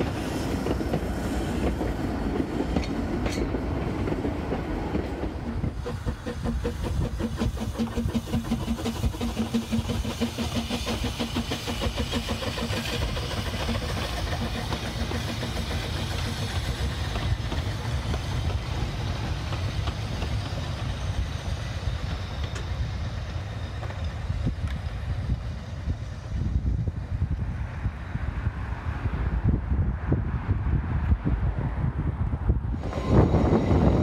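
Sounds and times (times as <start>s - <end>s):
steam engine hiss: 0.0s - 2.8s, 5.2s - 27.0s, 32.7s - 34.0s
steam locomotive running: 0.0s - 29.4s, 32.2s - 34.0s
train coaches rumbling: 0.0s - 34.0s.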